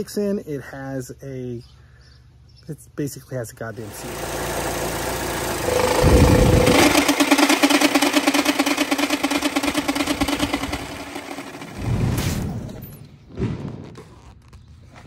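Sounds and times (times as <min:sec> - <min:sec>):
pulsing fan hum: 0:03.7 - 0:12.0
car engine running: 0:03.8 - 0:11.8.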